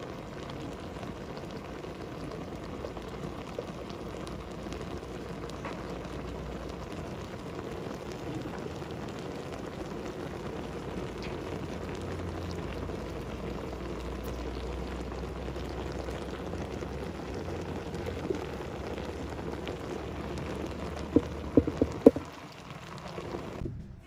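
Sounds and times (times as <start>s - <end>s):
boiling water bubbling hiss: 0.0s - 23.8s
low hum: 11.1s - 22.3s
sharp knocks: 21.2s - 22.2s.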